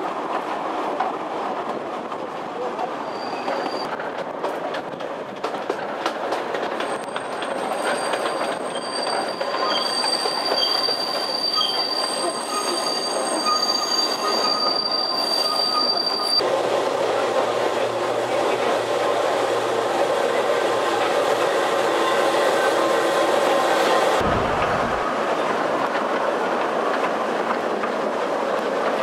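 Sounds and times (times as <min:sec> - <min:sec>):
high-pitched wheel squeal: 0:03.0 - 0:03.9, 0:06.9 - 0:16.4
train wheels clicking over rail joints: 0:03.5 - 0:13.0
deep rumble in tunnel: 0:24.0 - 0:27.2.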